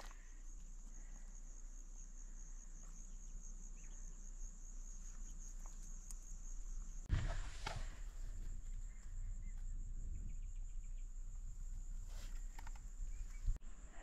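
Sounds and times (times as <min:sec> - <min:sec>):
high-pitched insect trill: 0:00.0 - 0:07.1.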